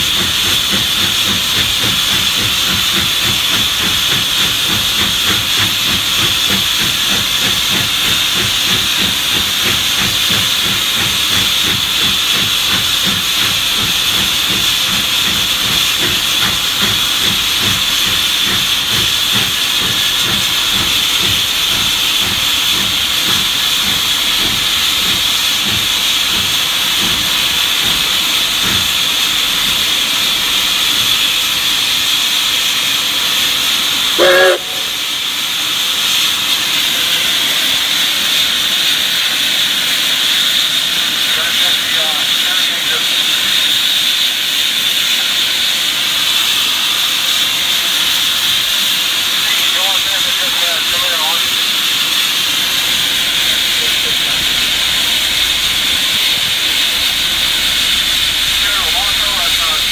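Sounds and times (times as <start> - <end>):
loud steam hiss: 0.0 - 59.9
steam engine exhaust chuffing: 0.0 - 59.9
steam whistle toot: 34.2 - 35.0.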